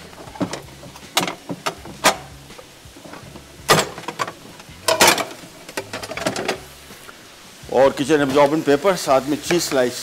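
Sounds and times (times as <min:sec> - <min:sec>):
crockery and utensils clattering: 0:00.2 - 0:02.3, 0:03.0 - 0:06.6.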